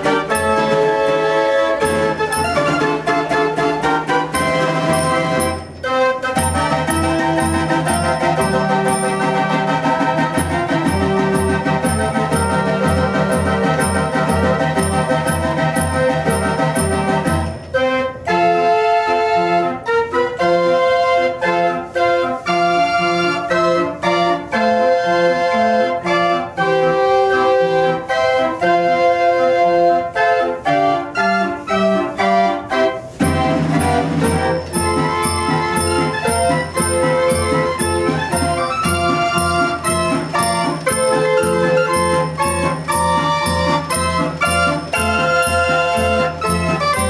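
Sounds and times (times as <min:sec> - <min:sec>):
pulsing organ bass: 0:00.0 - 0:17.6
mechanical pipe organ tune: 0:00.0 - 0:47.0.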